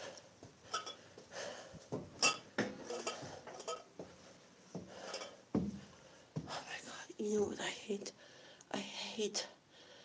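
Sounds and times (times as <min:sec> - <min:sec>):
glass bottles clanking: 0:02.2 - 0:03.9.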